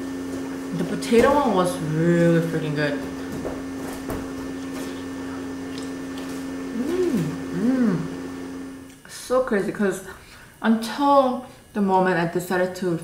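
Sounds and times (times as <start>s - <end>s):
steady mechanical hum: 0.0s - 13.0s
person humming mm: 6.7s - 8.4s.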